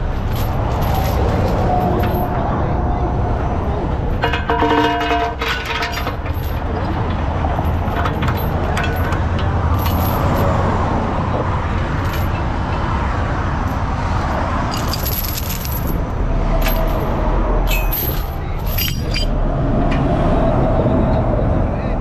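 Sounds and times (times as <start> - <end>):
metallic chain clinks: 0.0 - 2.4, 4.2 - 10.6, 12.0 - 12.4, 14.7 - 16.0, 16.6 - 19.4.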